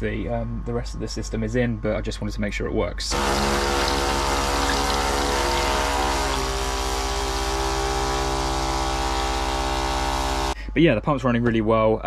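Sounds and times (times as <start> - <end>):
water pump humming and pulsing: 3.1 - 10.6
water running into plastic bowl: 3.2 - 7.1.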